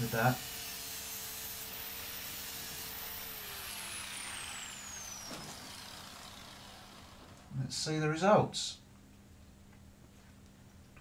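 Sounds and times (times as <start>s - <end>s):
angle grinder whining down: 0.0s - 8.2s.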